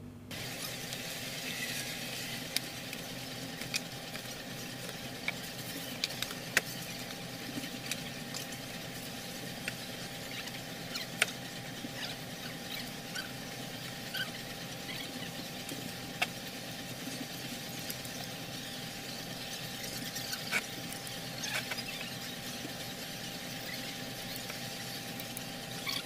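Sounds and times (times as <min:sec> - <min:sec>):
steady hiss: 0:00.3 - 0:25.9.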